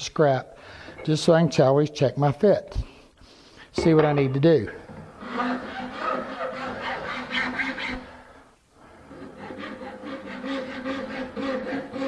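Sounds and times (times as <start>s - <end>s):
file rasping on wood: 5.2s - 8.2s, 9.1s - 12.0s.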